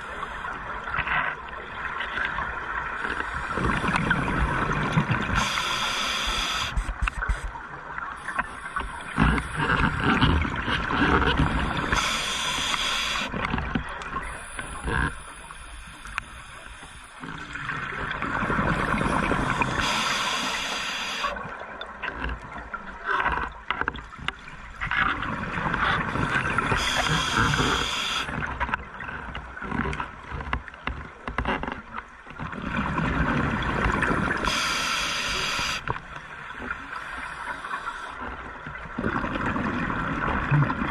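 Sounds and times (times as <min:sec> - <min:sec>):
bubbling and gurgling: 0:00.0 - 0:40.9
diver breathing through regulator: 0:05.4 - 0:06.8, 0:11.8 - 0:13.3, 0:19.0 - 0:21.4, 0:26.4 - 0:28.3, 0:34.4 - 0:35.9.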